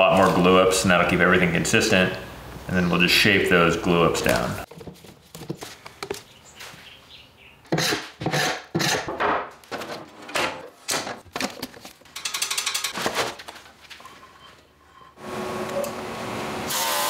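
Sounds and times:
metal table knocks and clunks: 0:09.0 - 0:11.2.

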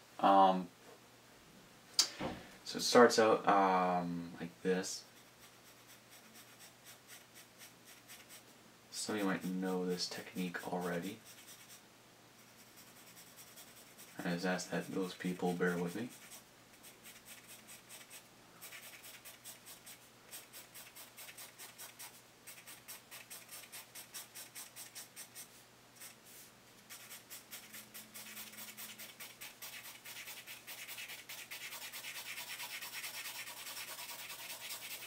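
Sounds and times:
pencil scratching on paper: 0:05.2 - 0:08.4, 0:10.6 - 0:11.8, 0:12.4 - 0:35.0.

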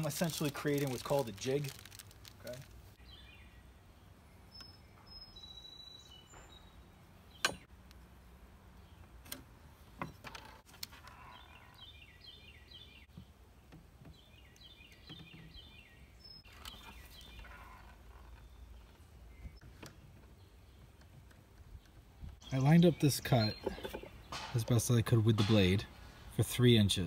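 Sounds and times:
bird chirping: 0:03.0 - 0:07.7, 0:11.0 - 0:26.2.

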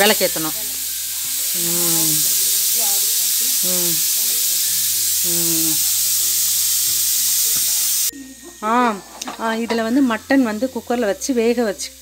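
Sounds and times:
loud steady hiss: 0:00.0 - 0:12.0.

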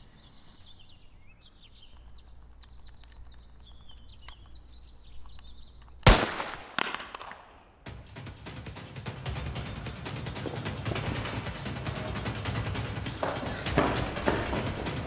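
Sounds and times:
birds chirping faintly: 0:00.0 - 0:06.6
loud gunshots: 0:06.0 - 0:07.7.

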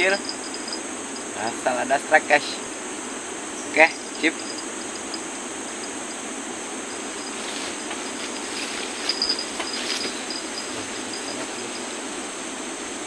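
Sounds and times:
insects chirping and trilling: 0:00.0 - 0:13.0
rustling in undergrowth: 0:06.7 - 0:13.0.

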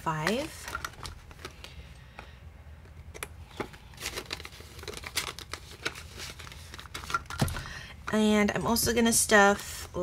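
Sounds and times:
faint steady hum: 0:00.0 - 0:10.0
paper banknotes rustling: 0:03.5 - 0:07.3.

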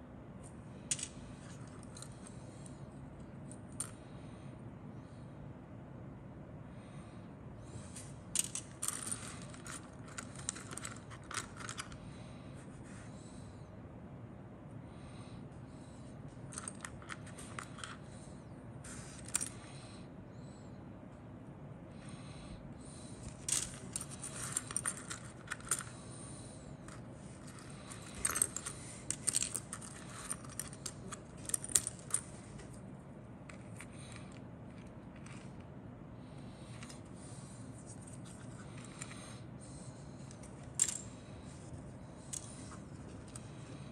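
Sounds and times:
plastic parts clicking and rattling: 0:08.4 - 0:12.0, 0:26.9 - 0:32.7.

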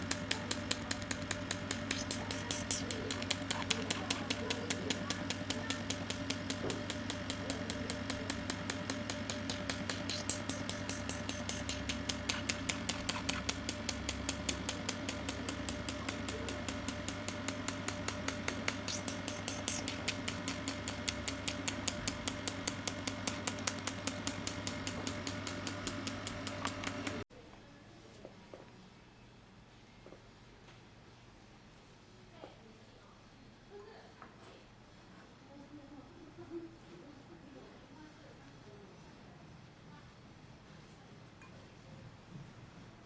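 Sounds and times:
machine pulsing over hum: 0:00.0 - 0:27.2
air hissing: 0:01.7 - 0:04.5, 0:09.9 - 0:13.4, 0:18.7 - 0:20.0.

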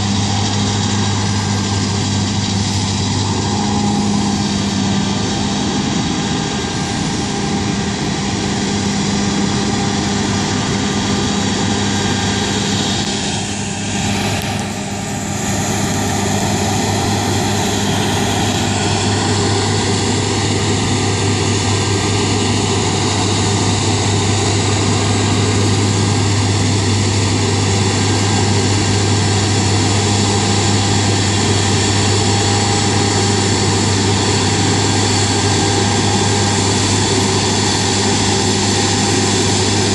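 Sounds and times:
combine harvester engine drone: 0:00.0 - 0:39.9.

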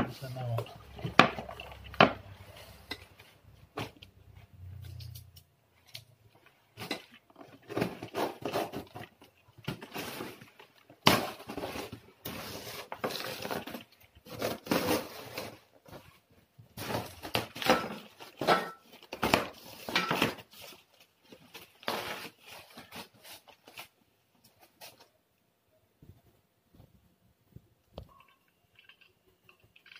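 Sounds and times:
cardboard rustling and scraping: 0:06.7 - 0:25.1.

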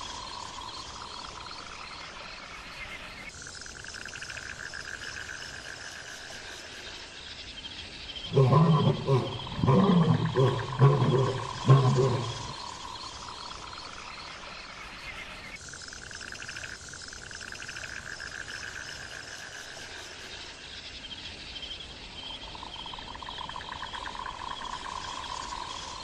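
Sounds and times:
chorus of trilling calls: 0:08.3 - 0:12.6.

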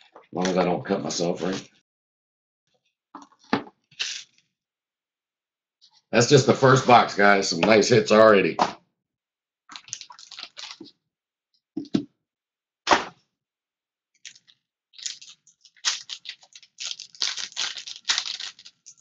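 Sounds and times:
foil wrapper crinkling and tearing: 0:09.7 - 0:10.9, 0:14.2 - 0:19.0
sharp cracks: 0:12.9 - 0:13.2.

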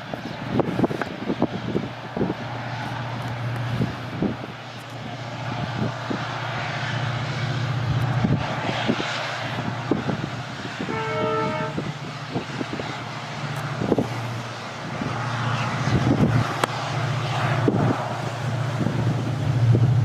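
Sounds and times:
locomotive engine droning: 0:00.0 - 0:20.0
train noise: 0:00.0 - 0:20.0
locomotive horn blast: 0:10.8 - 0:12.1.

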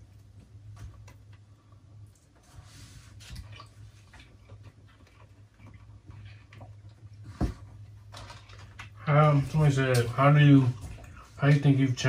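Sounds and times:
steady low hum: 0:00.0 - 0:12.0
chewing: 0:03.4 - 0:07.2.

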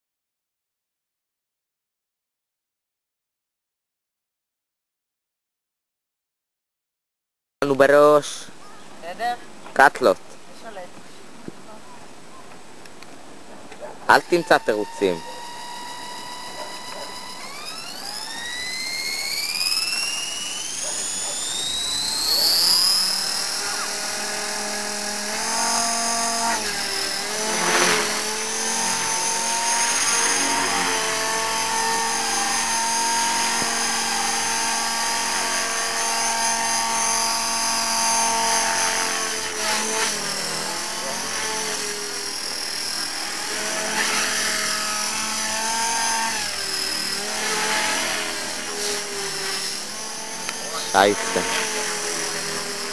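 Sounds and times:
model helicopter rotor whine: 0:14.0 - 0:52.9.

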